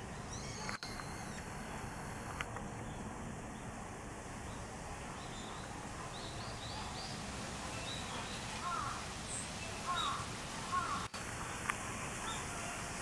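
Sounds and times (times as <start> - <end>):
birds chirping: 0.0 - 1.8, 4.4 - 11.6
outdoor background hiss: 0.0 - 13.0.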